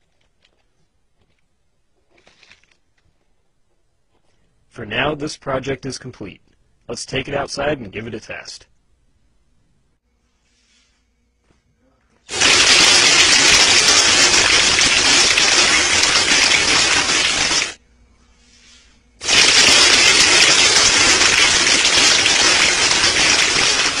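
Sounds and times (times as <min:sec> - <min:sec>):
airsoft gun firing air blasts: 0:19.2 - 0:24.0.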